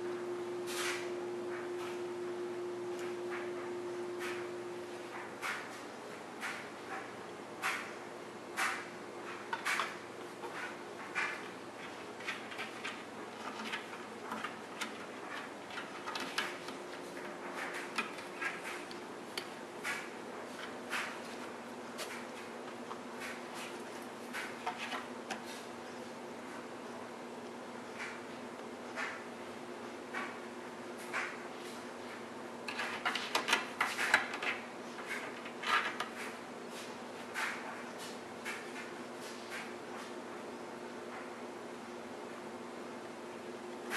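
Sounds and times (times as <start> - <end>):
faint steady hum: 0.0 - 43.9
cat claws scratching cabinet door: 9.4 - 18.9, 32.7 - 36.4.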